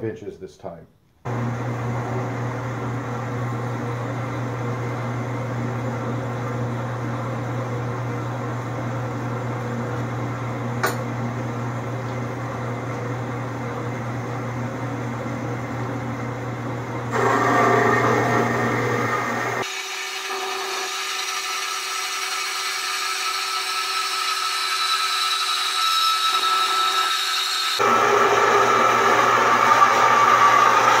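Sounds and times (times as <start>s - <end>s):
bandsaw motor hum: 12.9s - 31.0s
saw blade rasping through steel: 19.6s - 27.8s.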